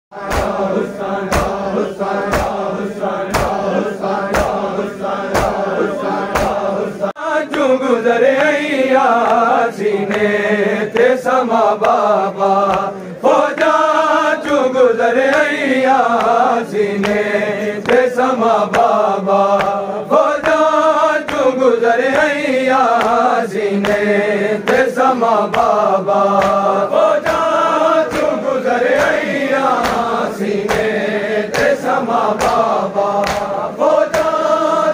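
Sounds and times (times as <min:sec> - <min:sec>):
men chanting in unison: 0:00.1 - 0:34.9
open-handed chest slaps: 0:00.2 - 0:06.7, 0:12.7 - 0:13.0, 0:19.6 - 0:19.8, 0:26.4 - 0:34.4.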